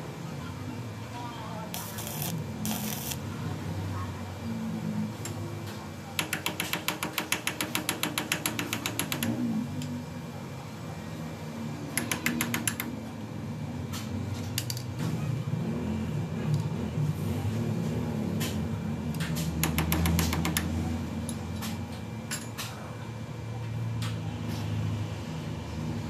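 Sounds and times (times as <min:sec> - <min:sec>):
rapid mechanical clicks: 0:06.2 - 0:09.9, 0:19.2 - 0:20.8.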